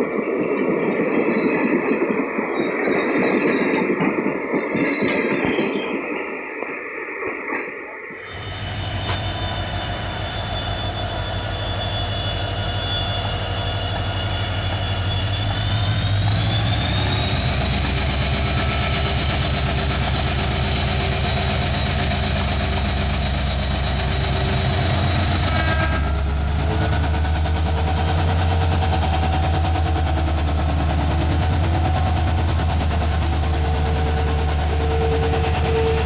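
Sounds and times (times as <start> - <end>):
locomotive high whine: 4.8 - 36.0
diesel locomotive engine rumble: 7.3 - 36.0.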